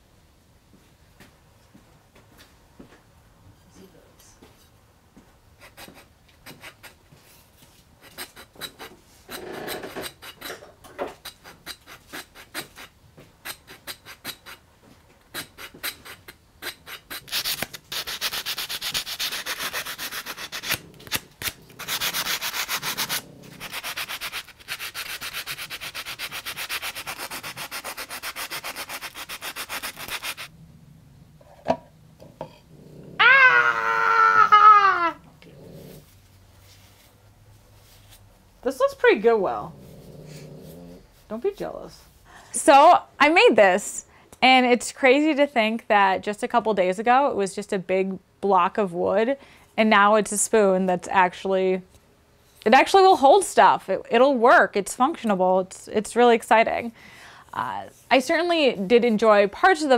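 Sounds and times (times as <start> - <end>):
carving tool scraping wood: 5.6 - 7.0, 8.0 - 14.7, 15.3 - 30.5
sandpaper rubbing wood: 11.2 - 12.9, 15.4 - 30.5.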